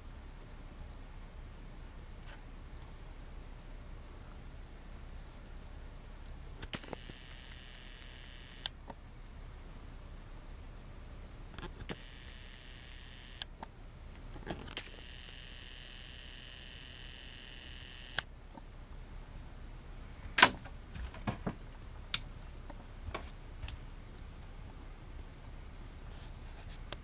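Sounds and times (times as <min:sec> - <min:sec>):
zoom motor whirring: 0:06.6 - 0:08.8, 0:11.6 - 0:13.5, 0:14.6 - 0:18.3.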